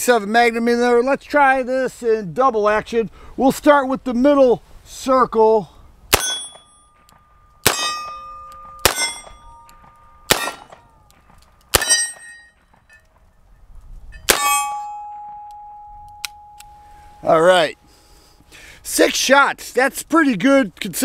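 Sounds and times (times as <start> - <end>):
steel plate targets ringing: 6.1 - 11.0, 11.7 - 13.1, 14.1 - 17.8
revolver shots: 7.6 - 11.0.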